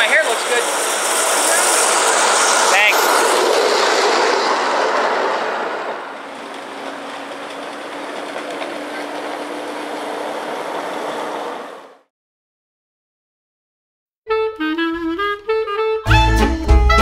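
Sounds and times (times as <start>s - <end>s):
wheels rolling on rail: 0.0s - 12.1s.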